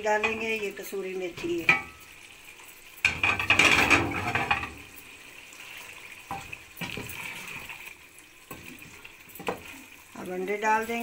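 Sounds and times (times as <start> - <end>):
wooden spoon stirring liquid: 5.6 - 11.0.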